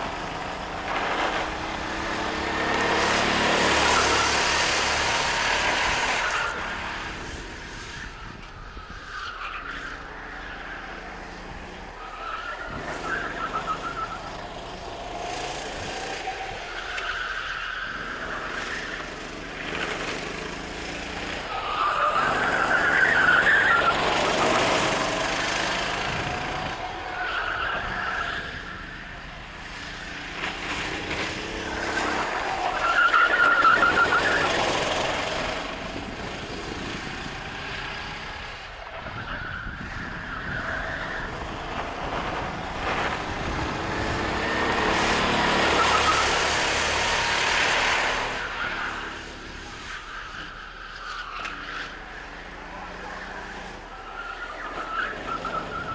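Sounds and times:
kart engine revving: 0:00.0 - 0:55.9.

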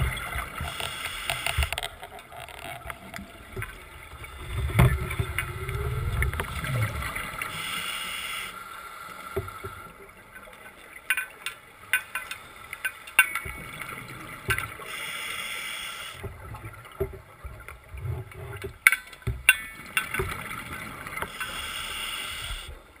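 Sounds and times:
underwater scooter motor: 0:00.0 - 0:08.7.

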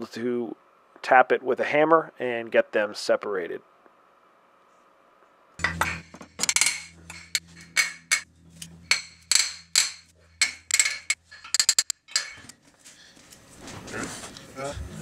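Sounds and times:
hammer tapping metal: 0:05.6 - 0:12.5.

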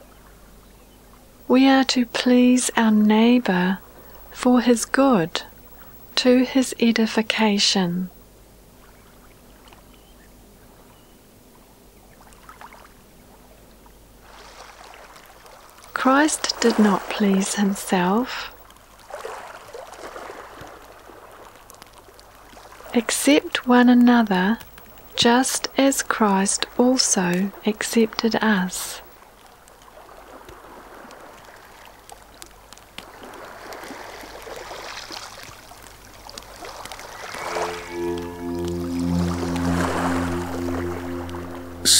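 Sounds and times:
low steady hum: 0:01.4 - 0:11.6, 0:36.3 - 0:41.9
faint running water: 0:12.0 - 0:41.7.

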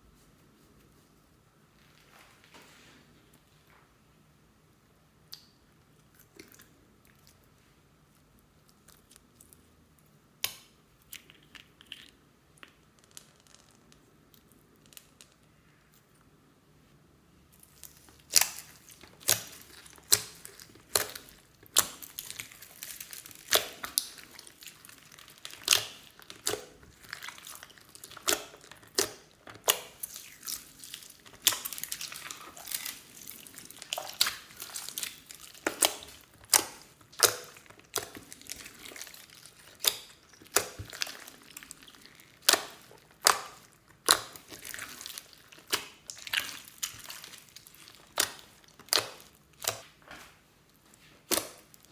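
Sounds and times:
hands squishing slime: 0:17.5 - 0:51.9.

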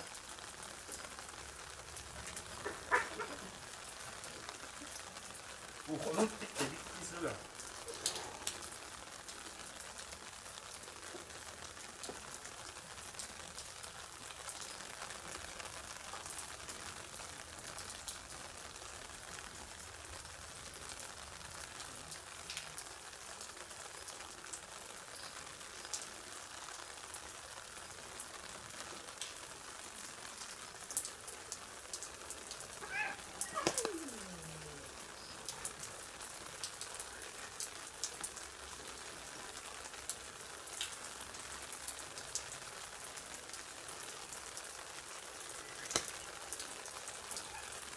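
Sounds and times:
steady rain falling: 0:00.0 - 0:47.9
short falling cry: 0:32.8 - 0:35.5.

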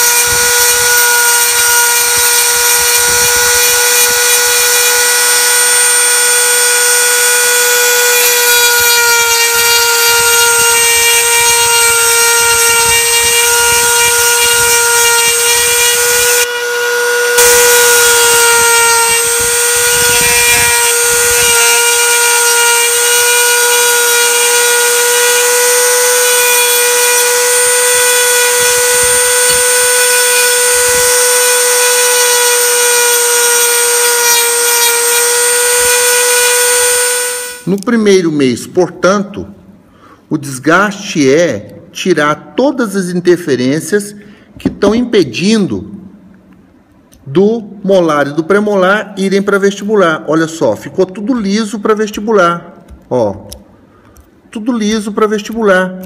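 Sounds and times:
rotary tool grinding acrylic: 0:00.0 - 0:37.8.

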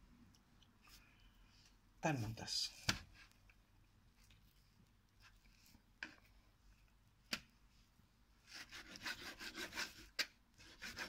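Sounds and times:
knife scraping strokes: 0:08.5 - 0:11.0.

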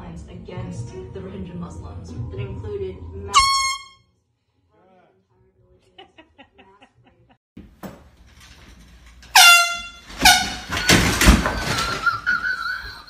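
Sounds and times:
air horn blasts: 0:03.3 - 0:04.0, 0:09.3 - 0:10.9.

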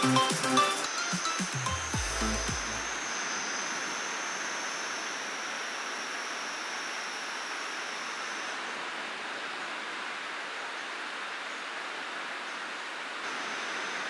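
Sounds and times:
thin high whine: 0:00.0 - 0:08.8, 0:13.2 - 0:14.0.

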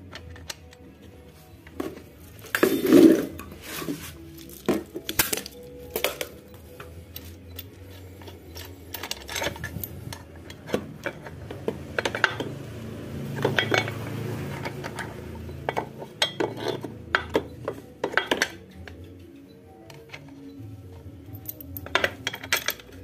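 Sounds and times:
small steel parts clinking: 0:01.6 - 0:11.4, 0:13.4 - 0:19.3, 0:19.9 - 0:23.0.

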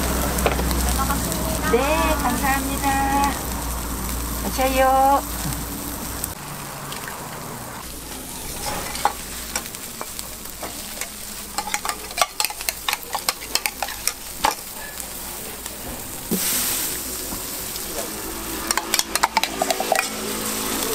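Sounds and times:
food sizzling on griddle: 0:00.0 - 0:20.9
metal utensil clicking in cup: 0:18.7 - 0:20.2.

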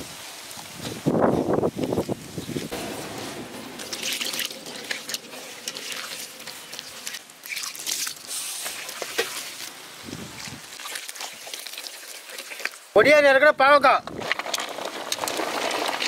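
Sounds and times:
batter squishing mixed by hand: 0:01.8 - 0:13.0.

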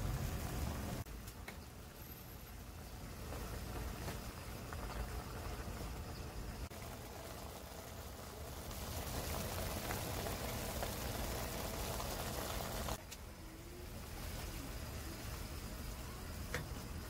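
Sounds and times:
broth simmering in a pot: 0:00.0 - 0:17.0
rain pattering: 0:03.1 - 0:13.0.

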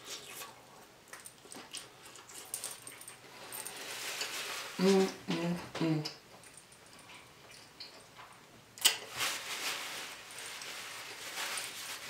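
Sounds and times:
person humming: 0:04.8 - 0:06.2
paper napkin rustling: 0:09.1 - 0:12.0.

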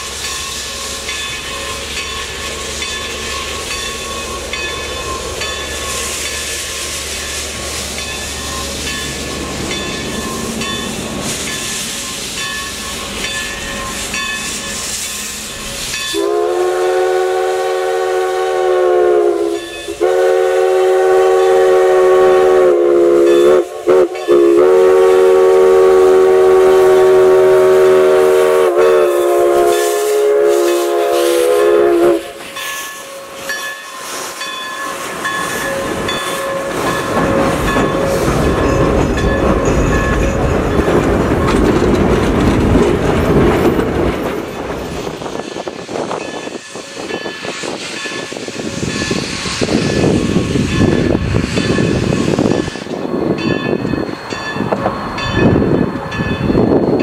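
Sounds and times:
steam hissing: 0:00.0 - 0:57.0
train coaches rumbling and clacking: 0:00.0 - 0:57.0
steam whistle blasts: 0:15.8 - 0:34.6, 0:35.4 - 0:38.8.

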